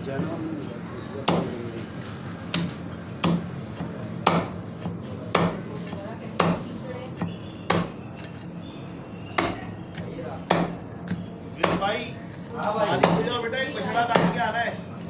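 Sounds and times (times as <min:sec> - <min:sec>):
cleaver chopping on wooden block: 0:02.5 - 0:05.6, 0:07.2 - 0:08.0, 0:09.4 - 0:09.7, 0:10.4 - 0:10.8, 0:11.6 - 0:11.9.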